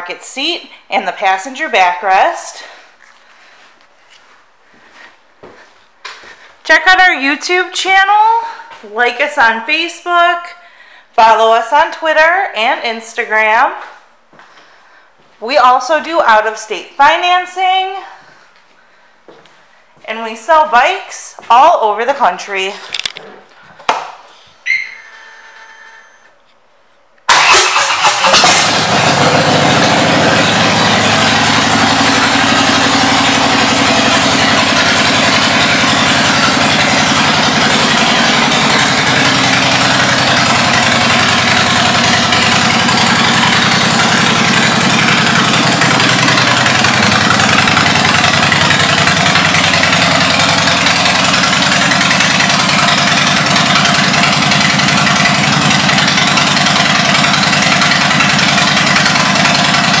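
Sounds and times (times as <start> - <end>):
motorcycle engine idling: 28.6 - 60.0.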